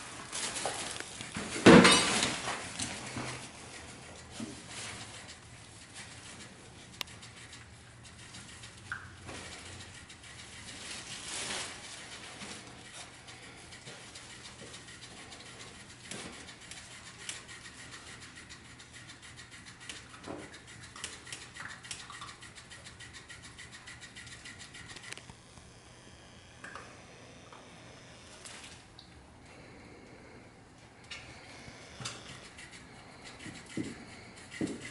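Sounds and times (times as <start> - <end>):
puppies scratching on fabric mats: 2.2 - 25.3, 31.4 - 34.9.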